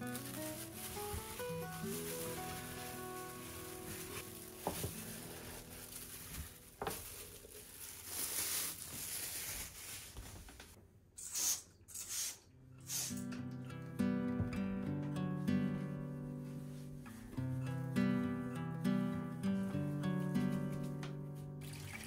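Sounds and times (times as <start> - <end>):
plastic glove and bag rustling: 0.0 - 10.8
spray bottle hissing: 11.2 - 13.3.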